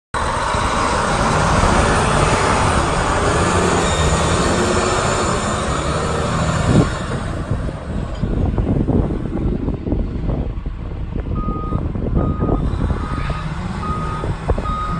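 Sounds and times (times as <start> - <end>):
dump truck diesel engine rumbling: 0.1 - 14.9.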